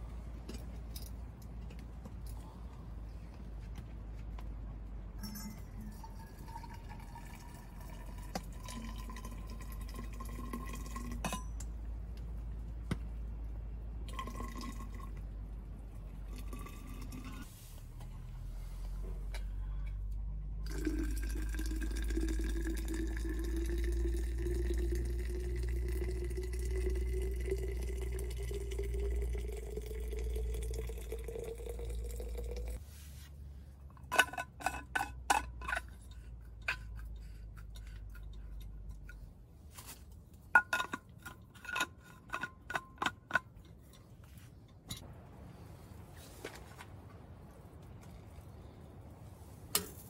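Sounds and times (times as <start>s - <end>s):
clinking metal and glass tableware: 5.2s - 7.6s, 10.6s - 11.7s
liquid pouring into vessel: 5.2s - 11.3s, 14.1s - 15.3s, 16.1s - 17.5s, 20.6s - 32.8s.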